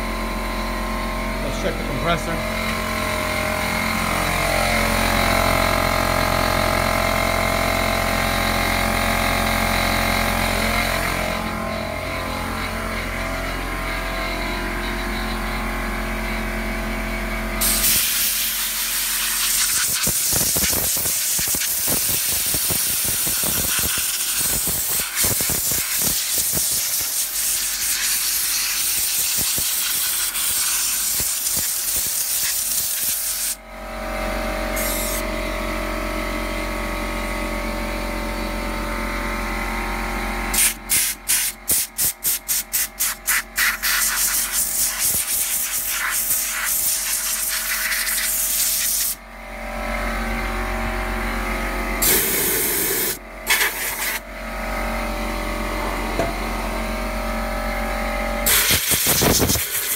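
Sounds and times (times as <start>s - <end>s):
air compressor motor humming: 0.0s - 59.9s
air blow gun hissing: 17.6s - 33.6s, 34.8s - 35.2s, 40.5s - 49.2s, 52.0s - 54.2s, 58.5s - 59.9s.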